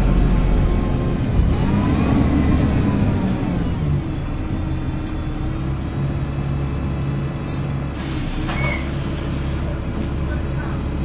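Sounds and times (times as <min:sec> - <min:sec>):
bus engine running: 0:00.0 - 0:11.0
air hissing: 0:07.5 - 0:09.8.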